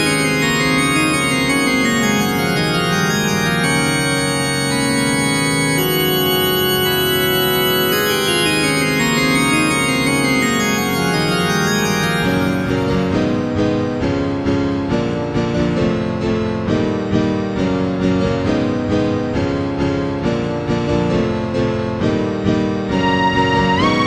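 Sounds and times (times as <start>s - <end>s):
slow stepping melody: 0.0s - 14.0s
sustained organ chords: 0.0s - 24.0s.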